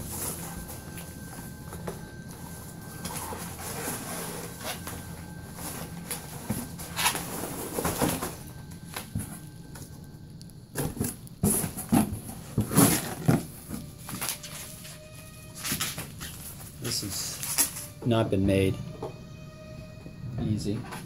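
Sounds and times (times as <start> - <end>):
cardboard scraping and bumping: 0.0 - 9.4, 10.8 - 17.9
packing peanuts rustling: 0.0 - 18.2.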